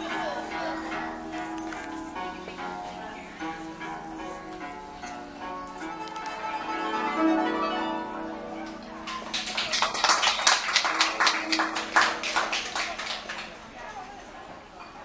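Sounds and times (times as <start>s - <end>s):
guzheng plucked notes: 0.0s - 9.9s.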